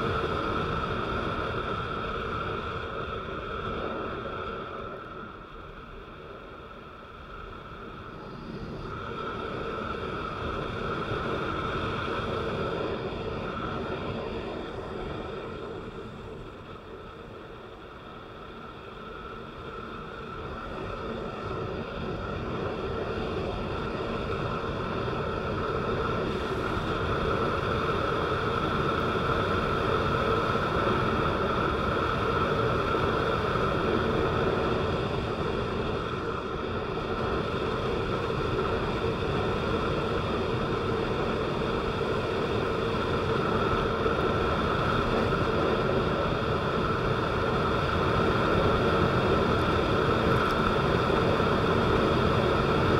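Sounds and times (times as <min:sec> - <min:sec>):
vehicle running hum: 0:18.8 - 0:52.9.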